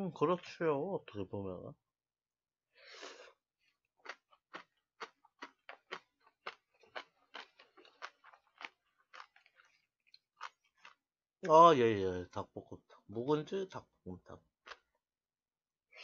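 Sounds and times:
man chewing with wet clicks: 0:04.0 - 0:11.0.

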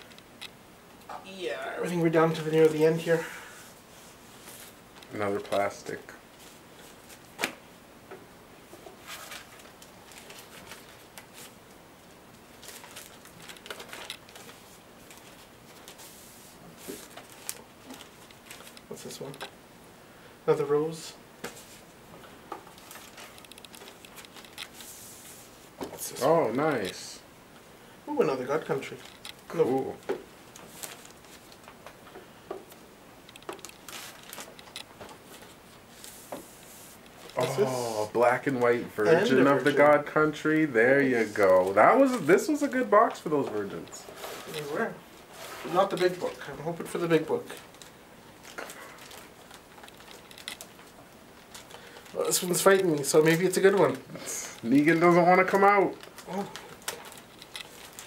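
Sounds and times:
paper and plastic sleeve rustling: 0:08.9 - 0:19.4, 0:22.7 - 0:27.2, 0:28.2 - 0:32.0, 0:32.7 - 0:58.0.

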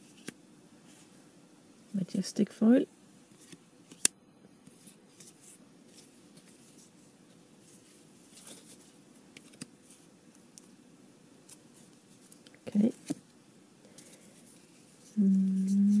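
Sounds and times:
cards rustling: 0:07.8 - 0:10.0
cards clicking on piles: 0:09.3 - 0:09.7.

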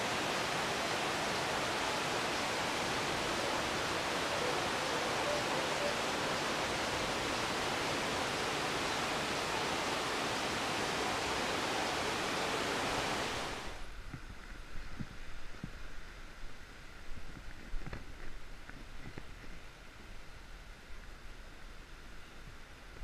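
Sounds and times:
heavy rain on canopy: 0:00.0 - 0:13.9.

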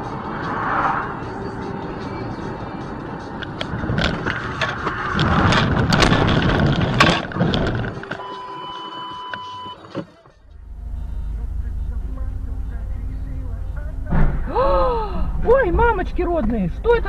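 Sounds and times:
branches scraping car body: 0:03.8 - 0:08.1
electronic beep tone: 0:08.2 - 0:09.9, 0:10.7 - 0:12.8.

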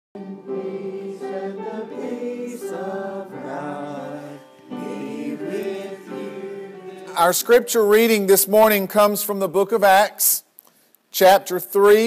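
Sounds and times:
choir singing held notes: 0:00.2 - 0:08.1.

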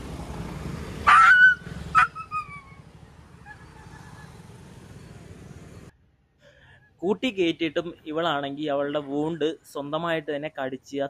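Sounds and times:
low traffic hum: 0:00.0 - 0:11.0
dog yelping: 0:01.1 - 0:02.8.

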